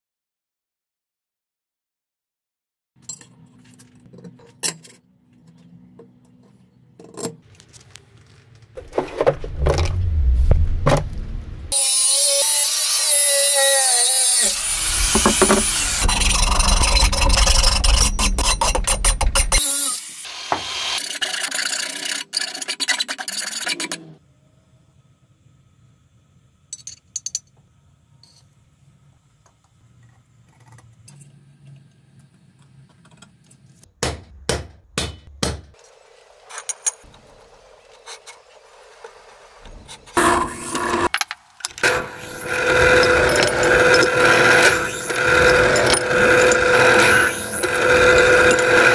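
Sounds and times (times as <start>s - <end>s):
angle grinder cutting steel: 11.7s - 24.0s, 40.2s - 48.9s.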